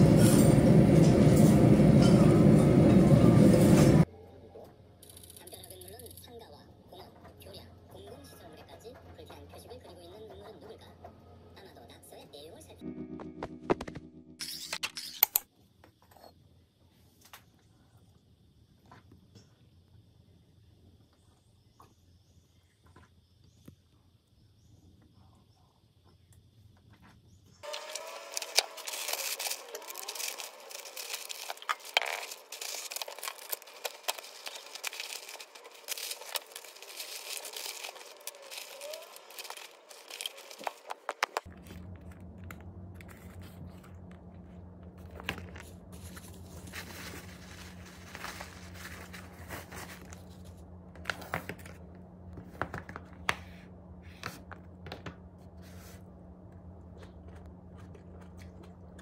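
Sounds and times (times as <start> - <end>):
plastic packaging crinkling: 27.6 - 53.3
steady low hum: 27.6 - 59.0.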